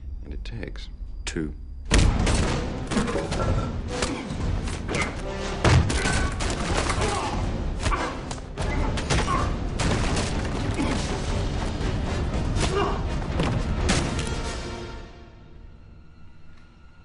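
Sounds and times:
punches: 1.9 - 11.2, 12.4 - 14.4
men grunting and yelling: 6.0 - 8.3, 12.5 - 13.3.

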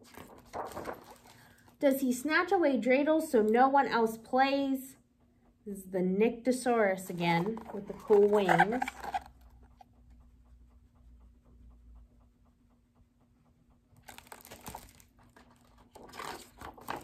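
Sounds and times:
book page turning: 0.0 - 1.5, 7.4 - 9.3, 14.0 - 17.0
paper rustling: 0.0 - 1.6, 7.4 - 9.3, 14.0 - 17.0.

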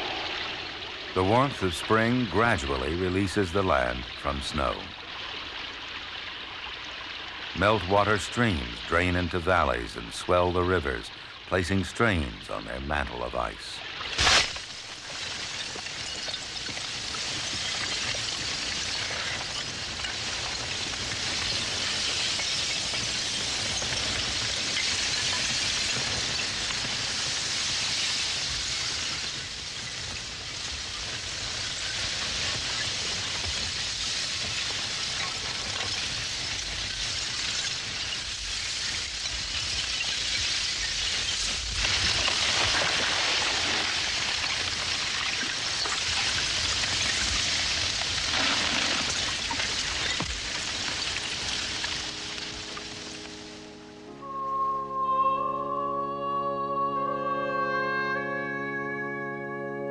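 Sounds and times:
ice fragments crackling: 13.9 - 53.7
water hissing: 40.4 - 53.6.

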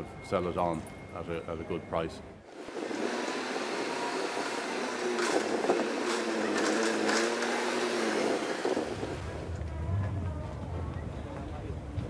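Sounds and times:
forklift motor hum: 2.4 - 11.1.

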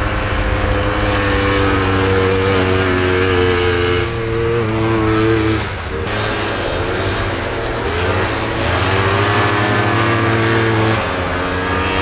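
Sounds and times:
snowmobile engines racing: 0.0 - 12.0.

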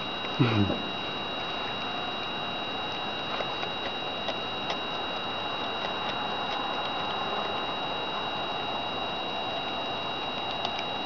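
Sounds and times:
high-pitched two-tone whine: 0.0 - 11.0
animal chewing clicks: 3.3 - 5.1, 5.7 - 7.6, 10.5 - 10.9.

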